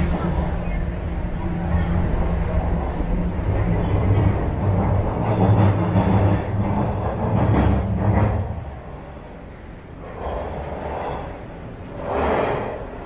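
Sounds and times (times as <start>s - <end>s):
subway train rumble: 0.0s - 13.0s.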